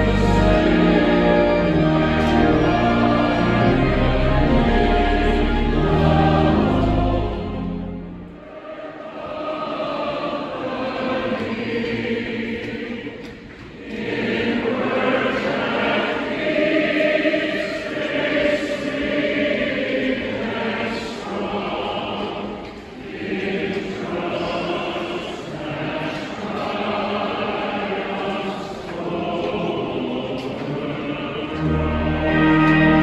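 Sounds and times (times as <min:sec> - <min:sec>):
large choir singing: 0:00.0 - 0:33.0.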